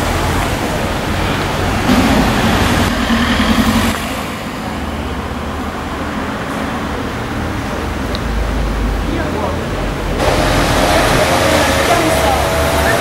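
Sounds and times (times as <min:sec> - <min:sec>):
traffic hum: 0:00.0 - 0:13.0
car driving past: 0:01.2 - 0:07.2.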